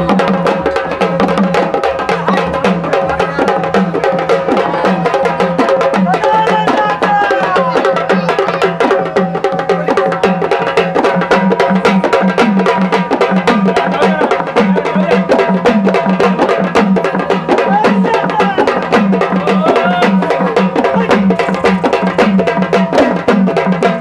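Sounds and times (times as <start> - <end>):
fast hand drumming: 0.0 - 24.0
singing voice: 4.5 - 9.0, 17.5 - 22.3.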